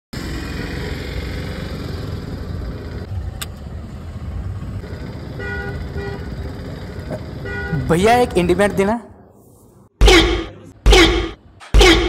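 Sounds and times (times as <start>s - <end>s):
street traffic rumble: 0.1s - 12.0s.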